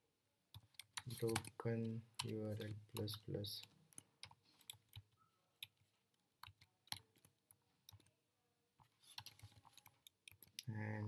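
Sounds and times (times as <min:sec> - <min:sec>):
computer keyboard keystrokes: 0:00.5 - 0:01.6, 0:09.1 - 0:10.7.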